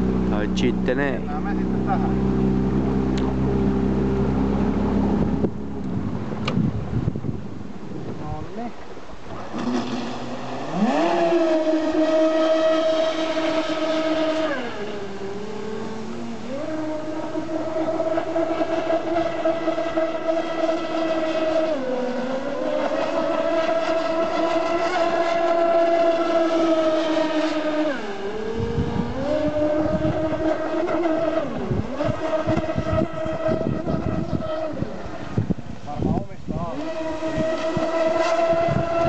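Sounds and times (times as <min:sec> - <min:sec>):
electric motors whining: 0:09.5 - 0:39.0.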